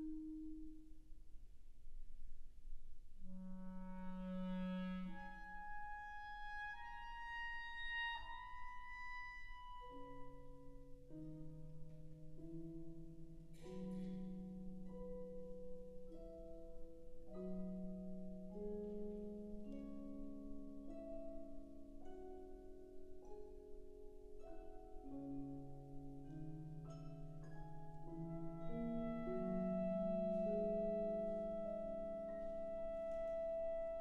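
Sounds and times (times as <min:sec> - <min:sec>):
solo clarinet held notes: 0:03.2 - 0:10.2, 0:28.0 - 0:34.0.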